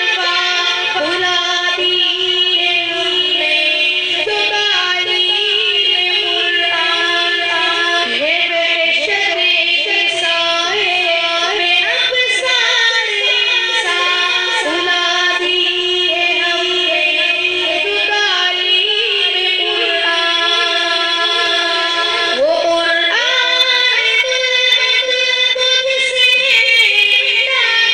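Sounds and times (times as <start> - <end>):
person singing ornamented notes: 0.0 - 27.9
held drone: 11.4 - 22.6.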